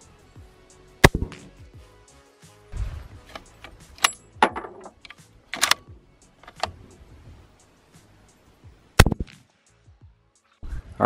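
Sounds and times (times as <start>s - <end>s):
rifle bolt metallic clicks: 3.3s - 6.8s.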